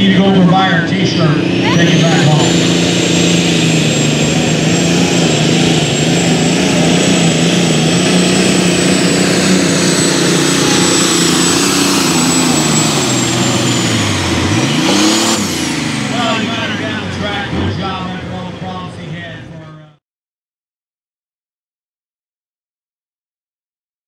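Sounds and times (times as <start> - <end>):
diesel tractor engine under load: 0.0 - 20.0
high turbo whistle: 1.3 - 17.0.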